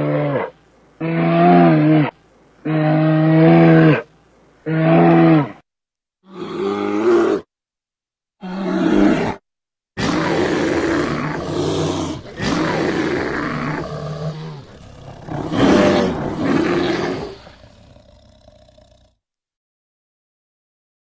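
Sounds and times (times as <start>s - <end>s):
bear roaring: 6.3s - 7.5s, 8.4s - 9.4s, 10.0s - 19.2s.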